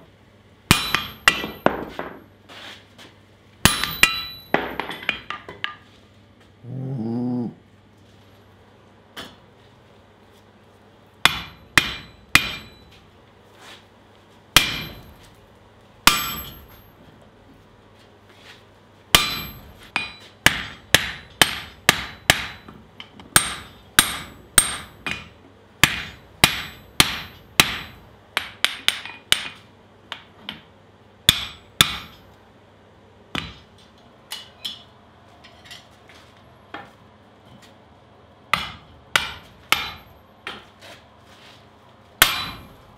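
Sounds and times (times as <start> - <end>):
hammer striking steel on anvil: 0.7 - 2.2, 3.6 - 5.8, 11.2 - 13.0, 14.6 - 15.3, 16.0 - 16.9, 19.1 - 30.6, 31.3 - 32.3, 33.3 - 33.7, 38.5 - 40.6, 42.2 - 42.8.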